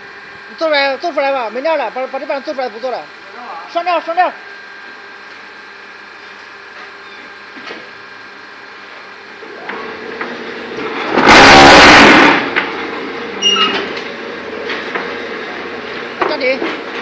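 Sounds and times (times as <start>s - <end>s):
machine motor and hydraulics hum: 0.0s - 17.0s
harsh burst of machine noise: 9.8s - 14.4s.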